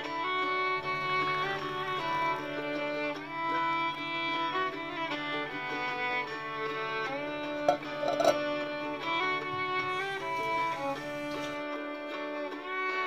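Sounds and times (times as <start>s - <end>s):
held string notes melody: 0.0s - 13.0s.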